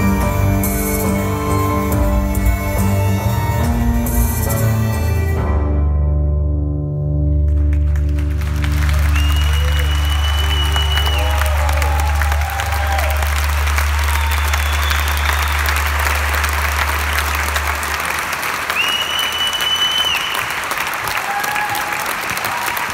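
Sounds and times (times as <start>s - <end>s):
audience applauding: 7.4s - 22.9s
high whistle: 9.0s - 12.0s, 13.9s - 16.2s, 18.7s - 20.6s.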